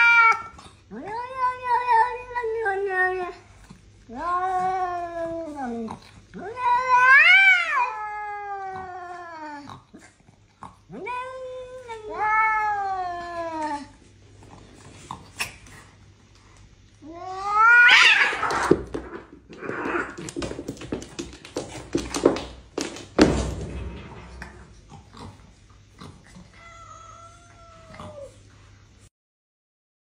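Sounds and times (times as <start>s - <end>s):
cats yowling: 0.0s - 3.5s, 4.1s - 10.0s, 10.9s - 14.0s, 17.0s - 20.3s, 26.4s - 28.5s
cats scuffling: 18.0s - 23.4s.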